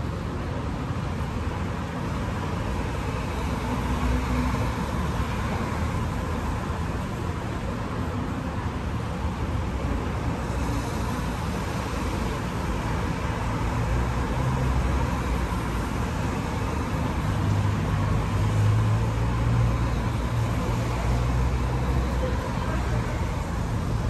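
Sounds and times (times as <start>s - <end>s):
street traffic noise: 0.0s - 24.0s.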